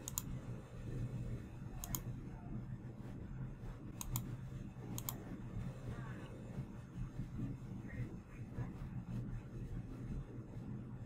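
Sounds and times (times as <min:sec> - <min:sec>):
computer mouse clicks: 0:00.0 - 0:00.4, 0:01.8 - 0:02.1, 0:04.0 - 0:04.3, 0:04.9 - 0:05.2
low steady hum: 0:00.0 - 0:11.0.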